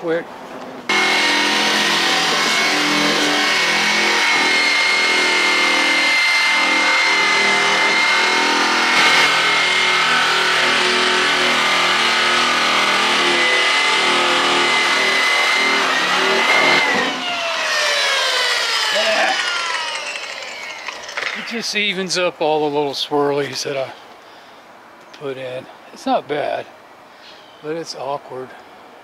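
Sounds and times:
power polisher motor whine: 0:00.9 - 0:21.6.

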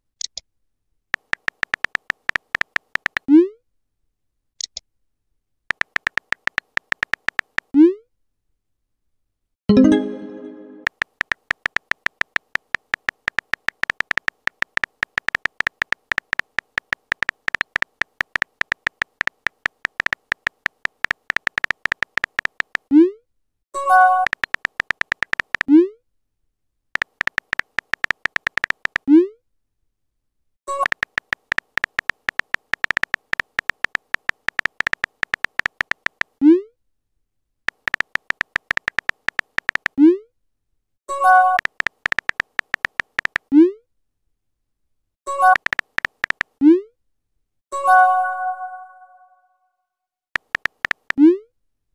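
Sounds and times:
keyboard clicking sound effect: 0:01.2 - 0:03.3, 0:05.7 - 0:07.7, 0:09.7 - 0:22.9, 0:24.0 - 0:25.7, 0:27.0 - 0:29.1, 0:30.7 - 0:36.4, 0:37.7 - 0:40.0, 0:41.1 - 0:43.5, 0:45.3 - 0:46.8, 0:50.4 - 0:51.3
brief message chimes: 0:09.7 - 0:10.9
rising pop message sent: 0:09.7 - 0:10.9.

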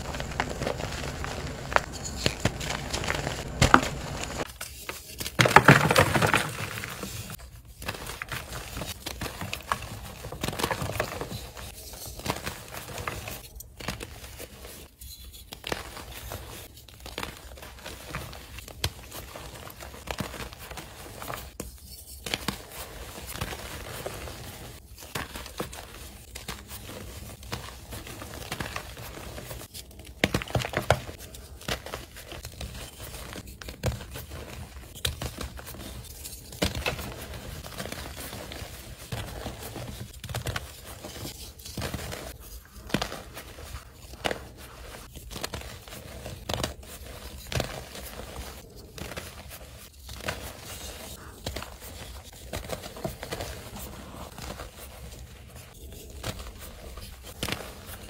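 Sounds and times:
chalk crunching and crackling: 0:00.0 - 0:05.3.

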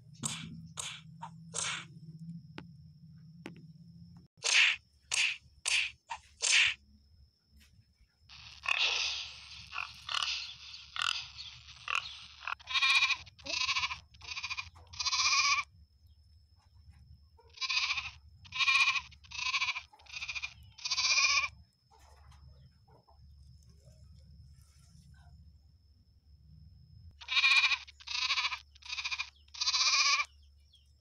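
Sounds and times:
goat bleating: 0:12.6 - 0:15.7, 0:17.5 - 0:21.6, 0:27.2 - 0:30.3.

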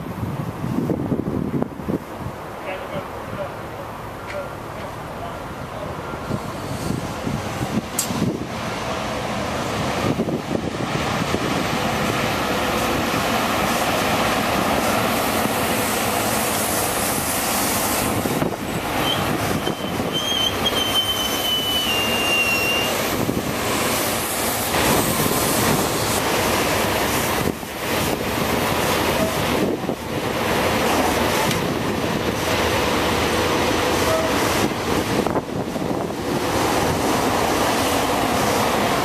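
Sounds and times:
train wheels rushing past: 0:05.8 - 0:39.0
high wheel squeal: 0:19.0 - 0:23.0.

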